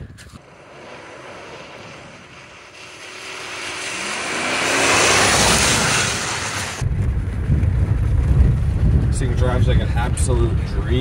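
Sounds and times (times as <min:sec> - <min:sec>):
truck engine passing: 0:00.4 - 0:06.8.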